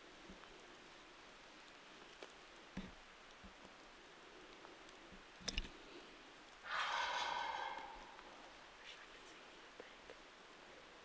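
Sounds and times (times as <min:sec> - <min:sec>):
turkey gobbling: 0:06.7 - 0:08.7.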